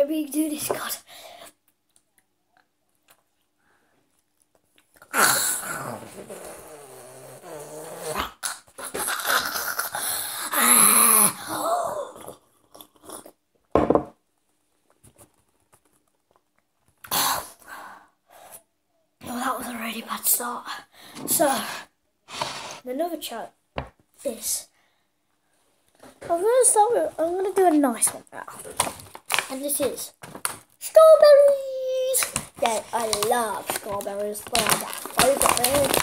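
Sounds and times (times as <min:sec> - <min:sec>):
boy gagging and retching: 0:05.0 - 0:13.5, 0:17.0 - 0:17.6, 0:33.1 - 0:36.0.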